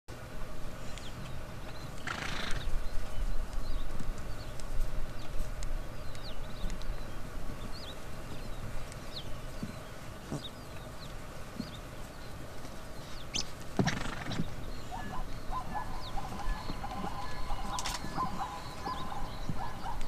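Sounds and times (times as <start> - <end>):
zebra snorting: 2.1 - 2.7, 10.2 - 10.6, 13.8 - 20.0
steady low rumble: 14.4 - 20.0.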